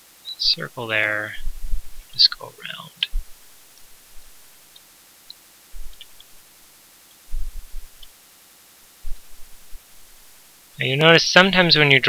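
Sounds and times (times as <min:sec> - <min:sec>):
steady hiss: 0:00.0 - 0:12.0
computer mouse clicks: 0:04.7 - 0:06.4.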